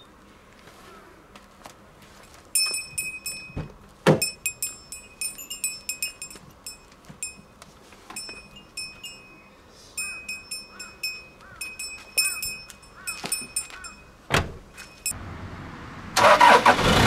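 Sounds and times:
small metal bell jingling: 0:02.3 - 0:15.2.

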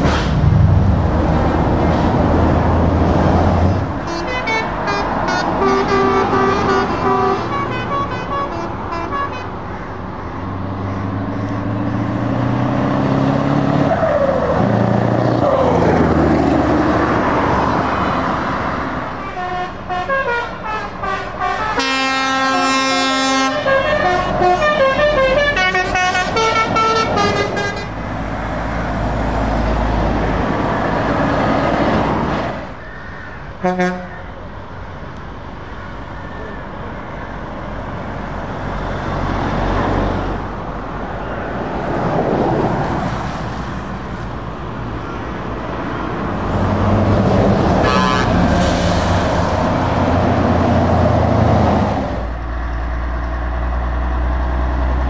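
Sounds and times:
road noise: 0:00.0 - 0:55.0
truck engines running: 0:00.0 - 0:55.0
truck air horns: 0:04.0 - 0:09.8, 0:19.2 - 0:28.0, 0:33.0 - 0:34.4, 0:47.8 - 0:49.4.

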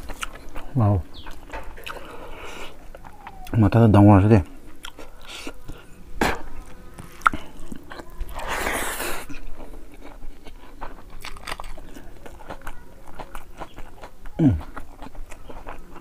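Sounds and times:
chewing with wet clicks: 0:00.0 - 0:03.6, 0:04.4 - 0:06.0, 0:06.6 - 0:08.5, 0:09.2 - 0:16.0
breathy hiss: 0:01.9 - 0:02.8.

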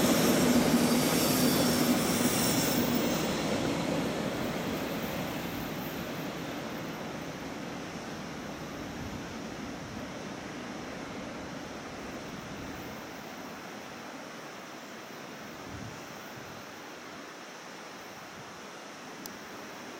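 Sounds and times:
train low rumble: 0:00.0 - 0:13.0
steady rushing noise: 0:00.0 - 0:13.3.

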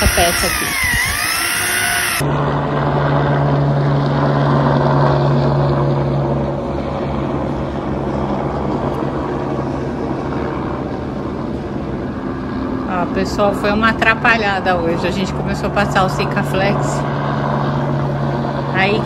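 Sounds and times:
motor humming: 0:00.0 - 0:02.2.

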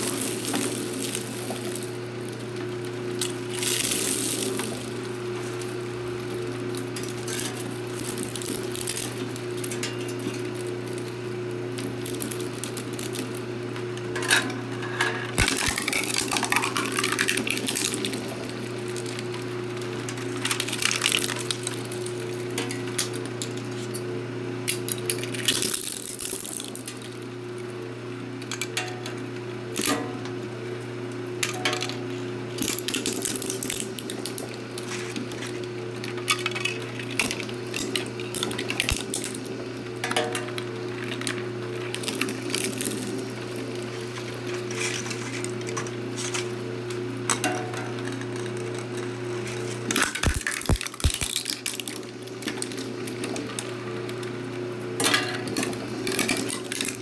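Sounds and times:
plastic cracking and crunching: 0:00.0 - 0:13.5, 0:15.4 - 0:23.4, 0:32.6 - 0:39.6, 0:47.3 - 0:53.7, 0:55.5 - 0:57.0
shredder motor hum: 0:00.0 - 0:57.0.

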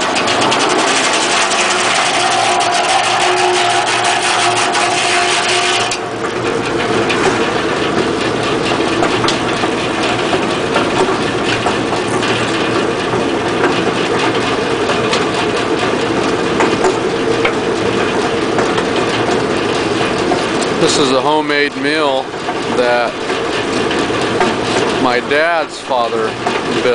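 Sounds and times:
sawmill blade sawing log: 0:00.0 - 0:06.0.

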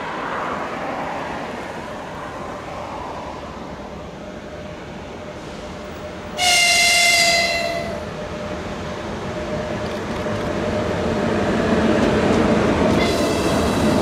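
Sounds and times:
train rumbling on rails: 0:00.0 - 0:14.0
train horn blast: 0:06.4 - 0:08.0, 0:12.9 - 0:13.8.

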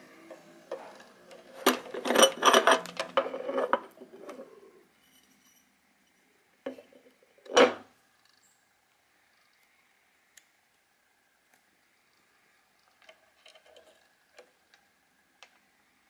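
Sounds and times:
metal cap grating and clicking: 0:00.3 - 0:05.6, 0:12.8 - 0:14.8.

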